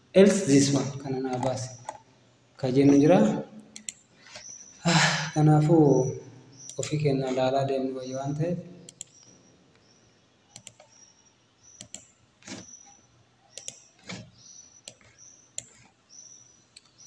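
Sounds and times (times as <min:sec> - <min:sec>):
mouse and keyboard clicks: 0:10.5 - 0:11.0, 0:11.8 - 0:12.8, 0:13.5 - 0:15.9.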